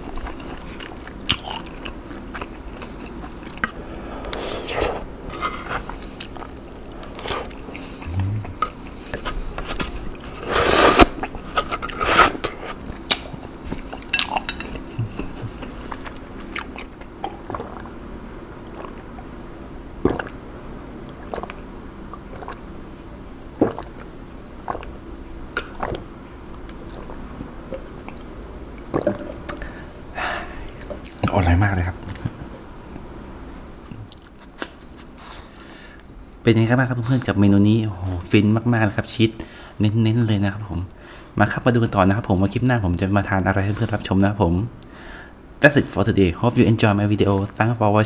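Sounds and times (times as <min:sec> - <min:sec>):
noodles slurped and chewed: 0:13.8 - 0:17.9, 0:21.2 - 0:22.7
gulps drinking from plastic cup: 0:23.6 - 0:24.0.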